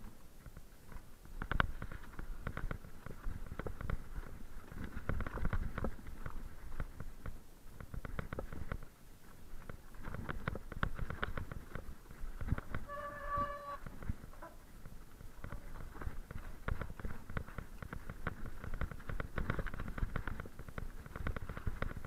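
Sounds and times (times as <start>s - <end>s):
mountain bike clattering over rocks: 14.9s - 22.0s.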